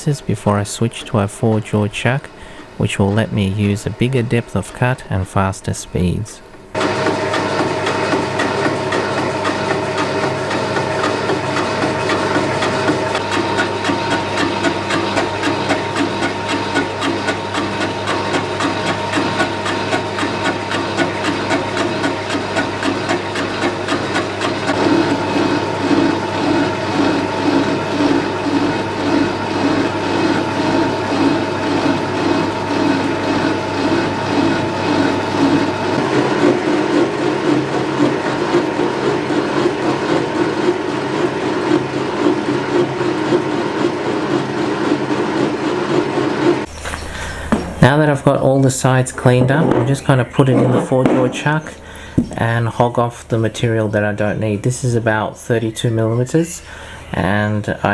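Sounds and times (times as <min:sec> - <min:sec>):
lathe tool knocking: 0:06.7 - 0:52.4
lathe motor hum and whine: 0:06.8 - 0:48.1.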